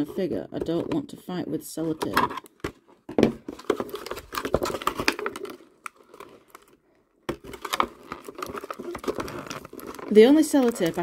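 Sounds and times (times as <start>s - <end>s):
plastic packaging crinkling: 3.4s - 11.0s.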